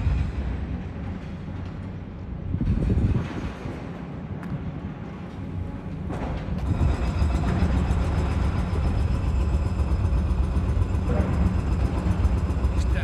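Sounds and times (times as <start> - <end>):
wind buffeting microphone: 0.0 - 9.2.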